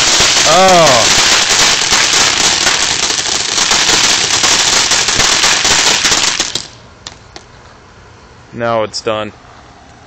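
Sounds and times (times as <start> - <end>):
firework crackling hiss: 0.0 - 7.2.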